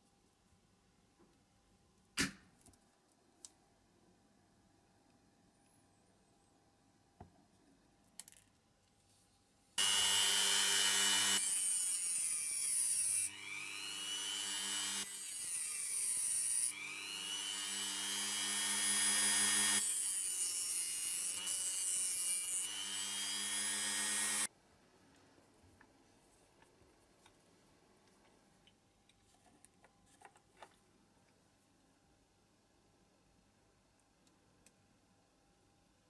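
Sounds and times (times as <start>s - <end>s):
rotary tool grinding: 9.8s - 20.0s.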